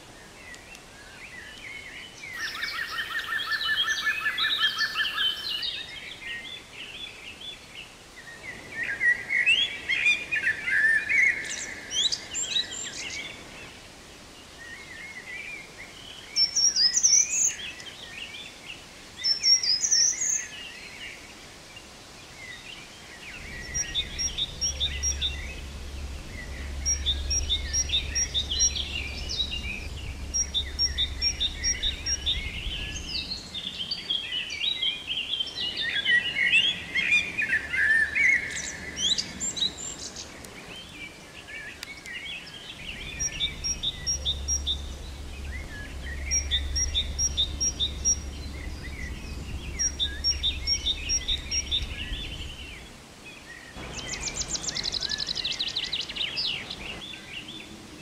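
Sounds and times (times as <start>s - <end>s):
songbirds chirping and singing: 0.2s - 7.7s, 22.4s - 57.8s
low steady rumble: 23.0s - 34.8s, 42.5s - 53.2s, 53.8s - 57.1s.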